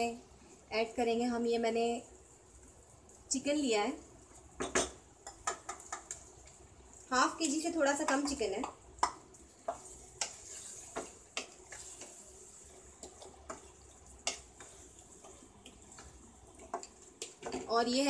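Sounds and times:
spatula stirring wet food: 2.2s - 18.0s
spatula knocking against pan: 4.6s - 6.2s, 8.0s - 10.4s.

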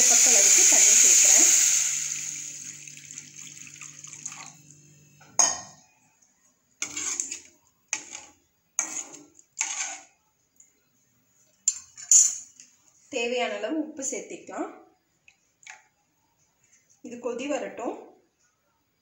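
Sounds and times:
water pouring into metal pan: 0.0s - 4.7s
utensil clanking and scraping pan: 6.8s - 10.1s.

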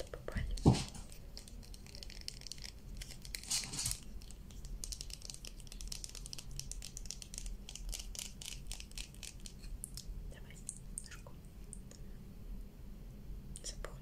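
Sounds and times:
tube rustling: 0.5s - 10.0s.

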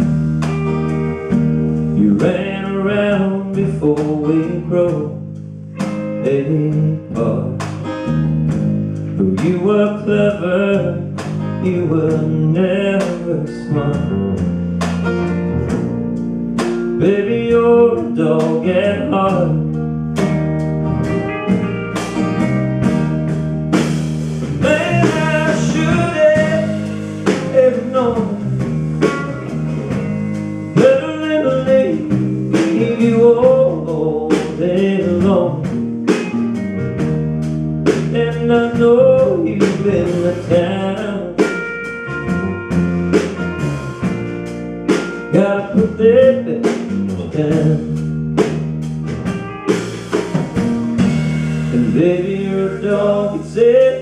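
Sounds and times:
drum kit steady beat: 0.0s - 2.4s, 13.9s - 54.0s
electric bass: 0.0s - 54.0s
lead electric guitar: 0.0s - 54.0s
strummed acoustic guitar: 0.0s - 54.0s.

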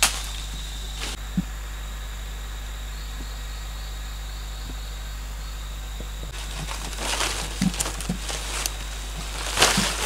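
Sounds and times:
leaves rustling and crackling: 0.0s - 1.5s, 6.0s - 10.0s
faint chirps: 0.0s - 10.0s
insect drone: 0.0s - 10.0s.

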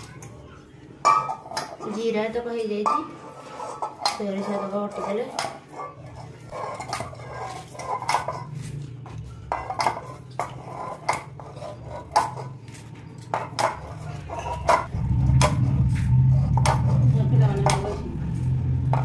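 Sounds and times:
hand scraping stone slab: 9.6s - 12.8s.

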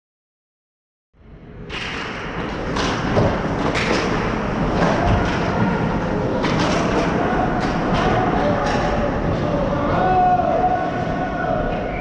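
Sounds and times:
hockey sticks and puck clacking: 1.7s - 9.5s.

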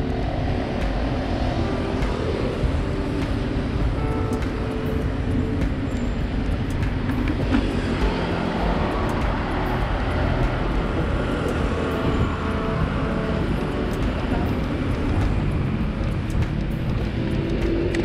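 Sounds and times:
low rumble: 0.0s - 18.0s
road traffic engines: 0.0s - 18.0s.

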